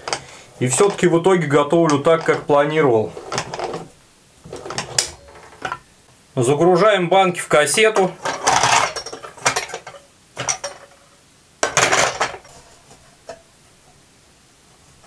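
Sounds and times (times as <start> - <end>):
glass jars clinking: 8.3 - 10.9.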